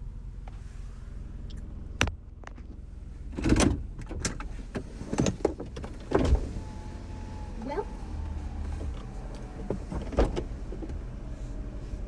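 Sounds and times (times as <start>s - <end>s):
car engine idling: 0.0s - 5.0s.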